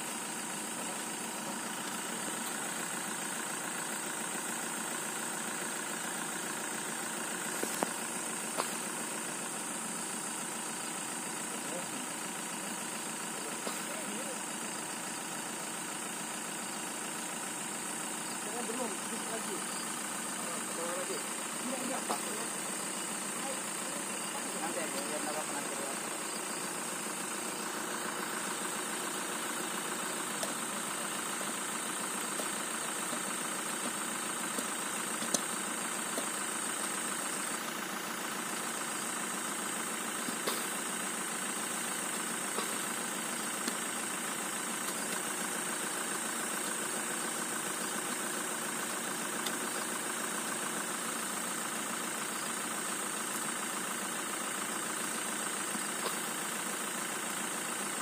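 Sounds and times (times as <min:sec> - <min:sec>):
engine idling: 0:00.0 - 0:58.0
shovels knocking in soil: 0:33.1 - 0:35.5.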